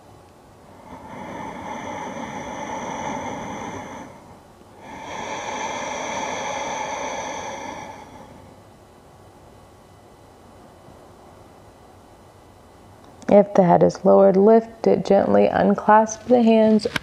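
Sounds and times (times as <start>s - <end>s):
person breathing deeply: 0.6s - 8.6s.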